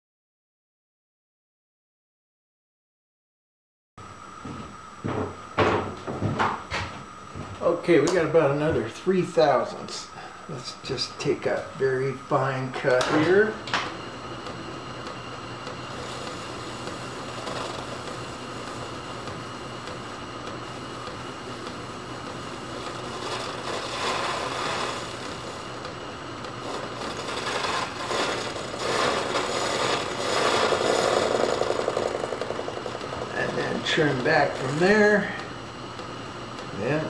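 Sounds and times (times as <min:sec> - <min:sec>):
metal lathe running: 0:12.2 - 0:37.0
cutting tool scraping metal: 0:23.1 - 0:25.2, 0:26.6 - 0:32.5.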